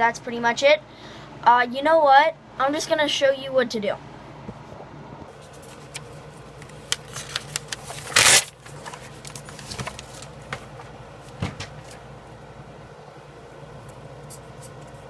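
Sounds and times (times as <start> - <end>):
paper rustle: 5.3 - 10.8.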